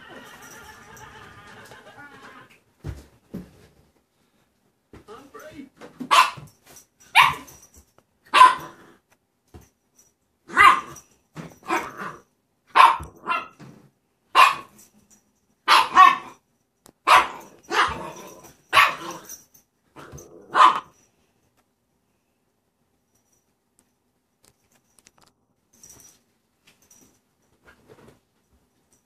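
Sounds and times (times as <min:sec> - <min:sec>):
puppy barking: 0:06.1 - 0:06.5, 0:07.1 - 0:07.6, 0:08.3 - 0:08.8, 0:10.5 - 0:11.0, 0:11.6 - 0:13.6, 0:14.3 - 0:14.8, 0:15.7 - 0:16.4, 0:17.0 - 0:19.3, 0:20.0 - 0:20.9.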